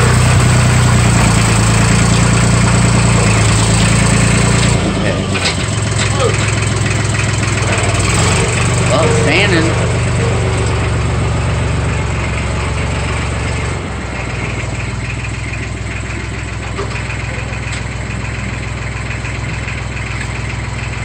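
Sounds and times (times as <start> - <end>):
tractor engine idling: 0.0 - 21.0.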